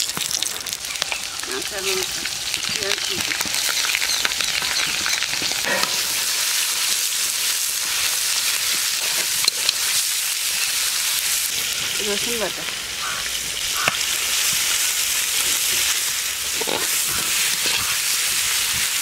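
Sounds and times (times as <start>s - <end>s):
onions sizzling in hot oil: 0.0s - 19.0s
metal spatula scraping a pan: 3.1s - 7.0s, 8.6s - 10.0s.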